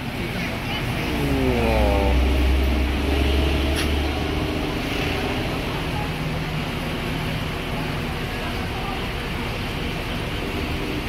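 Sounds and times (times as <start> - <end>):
bus diesel engine rumbling: 0.0 - 11.0.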